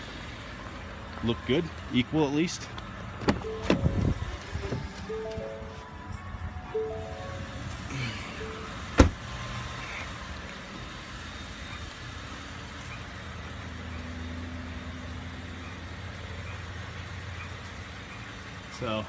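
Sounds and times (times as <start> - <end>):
truck engine idling: 0.0 - 19.0
truck door slamming: 3.2 - 4.1, 8.9 - 9.2
short chime tones: 6.6 - 8.7.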